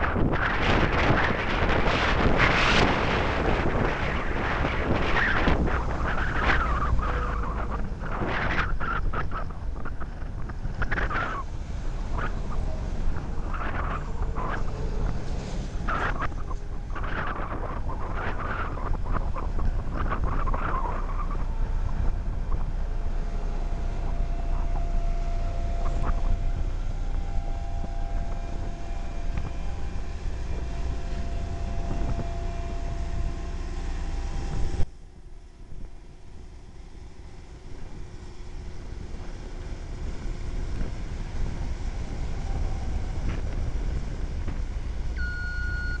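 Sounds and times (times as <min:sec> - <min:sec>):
diesel engine running: 0:00.0 - 0:46.0
reversing alarm beeping: 0:45.2 - 0:46.0.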